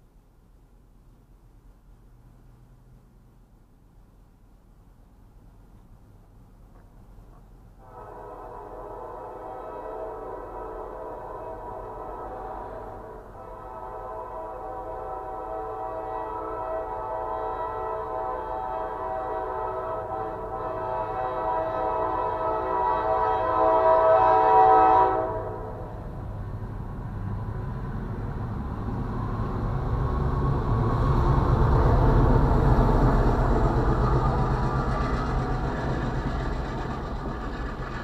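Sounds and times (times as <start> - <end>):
diesel locomotive rumbling past: 1.0 - 38.0
train air horn: 7.8 - 26.2
freight cars rolling by: 25.3 - 38.0.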